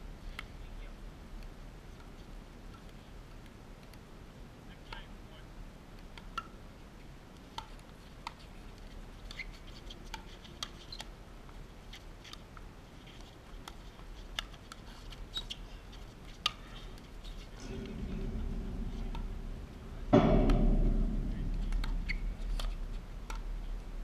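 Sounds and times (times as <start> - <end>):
ball bouncing on hard court: 20.1 - 23.5.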